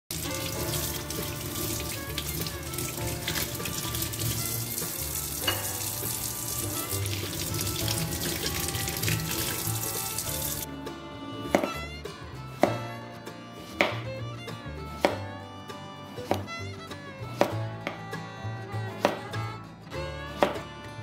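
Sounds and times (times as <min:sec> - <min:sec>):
tap water running into sink: 0:00.1 - 0:10.7
water splashing over food: 0:00.1 - 0:10.7
background music: 0:00.1 - 0:21.0.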